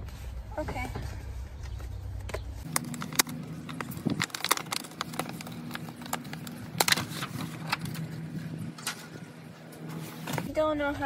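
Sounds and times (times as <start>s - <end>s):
steady low hum: 0.1s - 11.0s
plastic packaging crinkling: 2.6s - 8.6s.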